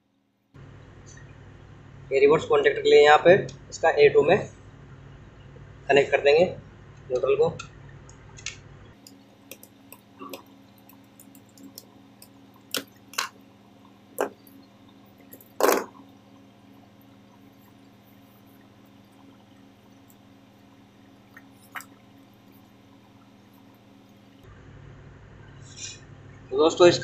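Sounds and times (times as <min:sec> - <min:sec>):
faint steady hum: 0:00.0 - 0:27.0
small clicks and taps on wires: 0:07.0 - 0:13.4.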